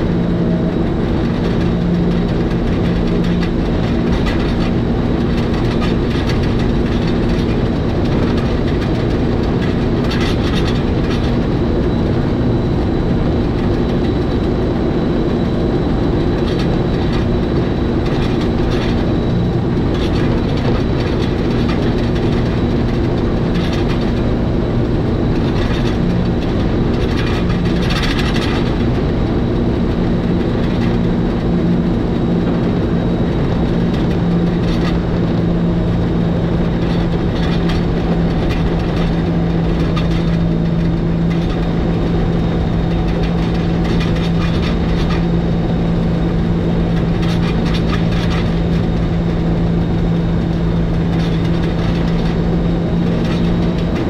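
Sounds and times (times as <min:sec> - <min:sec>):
electric train motor hum and whine: 0:00.0 - 0:54.0
wheels clicking and clattering on track: 0:00.0 - 0:54.0.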